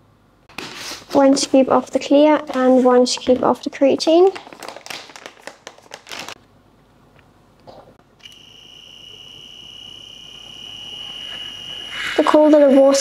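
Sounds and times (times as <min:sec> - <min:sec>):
electric frother whine: 0:08.2 - 0:13.0.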